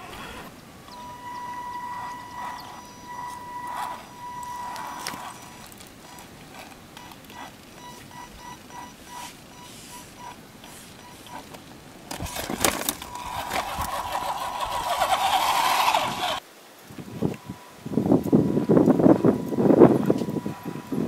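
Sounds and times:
faint regular chirping: 0.0s - 11.6s
electric motor and gearbox whining: 0.0s - 16.4s, 17.3s - 21.0s
tyres scrabbling on rock: 1.8s - 16.4s.

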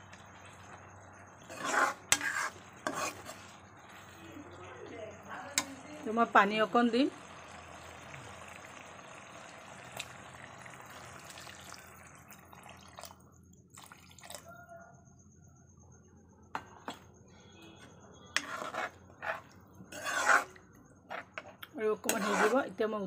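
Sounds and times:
water hissing in hot pan: 0.0s - 13.0s, 22.0s - 22.7s.

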